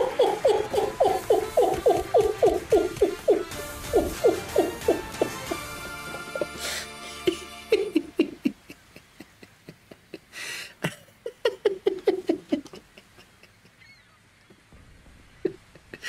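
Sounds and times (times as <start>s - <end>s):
man laughing: 5.3s - 13.8s, 15.4s - 16.0s
breathy gasp: 6.5s - 7.2s, 10.3s - 10.8s.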